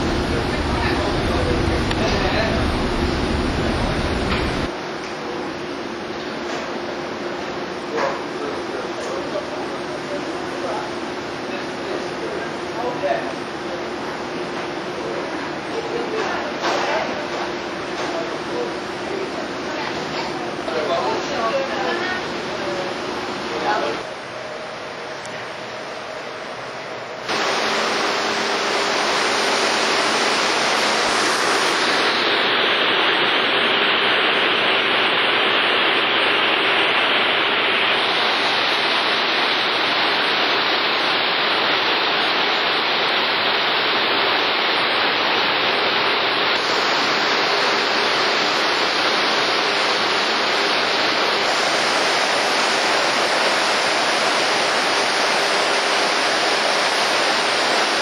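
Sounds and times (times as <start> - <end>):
sea water rushing past hull: 27.3 - 58.0.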